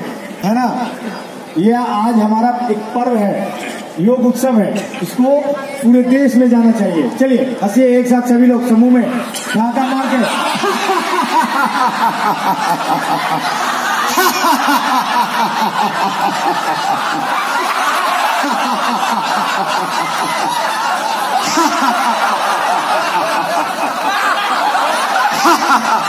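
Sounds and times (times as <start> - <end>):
crowd laughing heartily: 0.0 - 1.5, 9.0 - 26.0.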